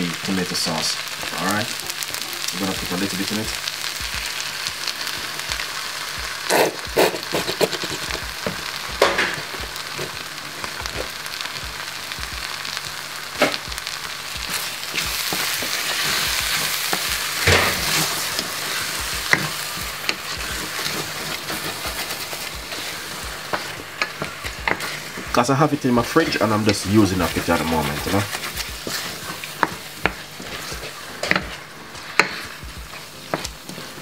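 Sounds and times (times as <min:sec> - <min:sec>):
meat and beans sizzling in saucepan: 0:00.0 - 0:34.0
wooden spoon stirring: 0:14.2 - 0:34.0.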